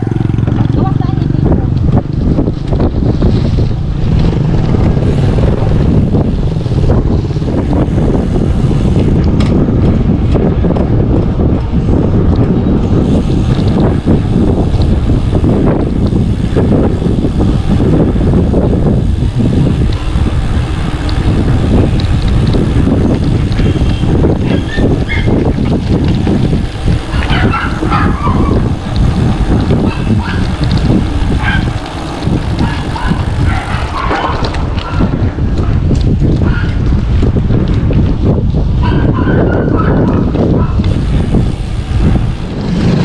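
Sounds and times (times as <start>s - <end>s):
wind buffeting microphone: 0.0s - 43.0s
dog barking: 25.1s - 25.3s, 27.1s - 28.5s, 31.4s - 31.7s, 32.6s - 35.0s, 38.8s - 40.8s.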